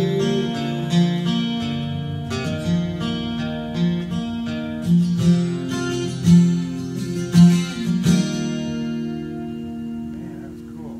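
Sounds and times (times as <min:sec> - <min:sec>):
acoustic guitar strumming: 0:00.0 - 0:10.9.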